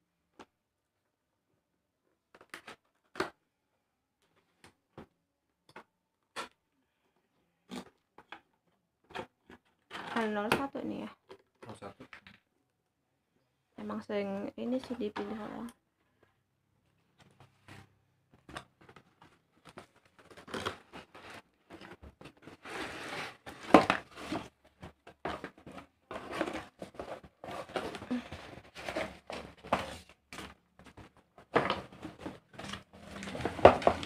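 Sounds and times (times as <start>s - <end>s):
cardboard box scraping: 20.3s - 30.5s, 31.5s - 34.0s
plastic wrapping rustling: 25.5s - 34.0s.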